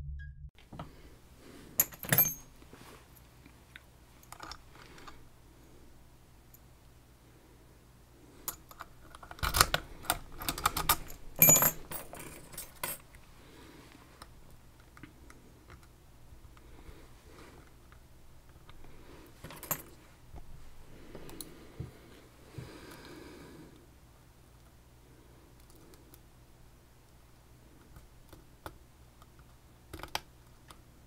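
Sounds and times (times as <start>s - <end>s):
lock picks clicking in a lock: 8.5s - 13.0s.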